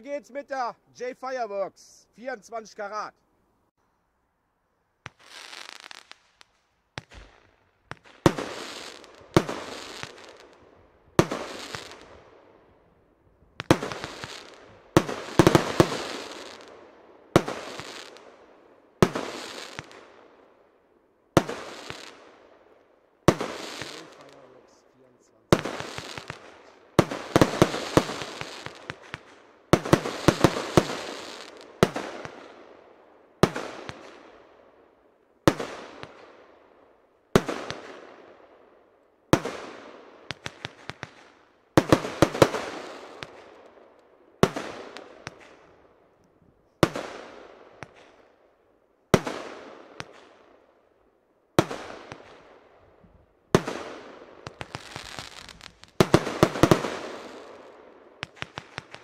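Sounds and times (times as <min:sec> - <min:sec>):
quick firework pops: 0:05.0 - 0:08.7, 0:58.2 - 0:59.0
fireworks bangs: 0:05.0 - 0:12.5, 0:13.6 - 0:20.2, 0:21.3 - 0:22.5, 0:23.2 - 0:32.8, 0:33.4 - 0:34.4, 0:37.3 - 0:38.3, 0:39.3 - 0:43.8, 0:44.4 - 0:45.7, 0:53.5 - 0:59.0.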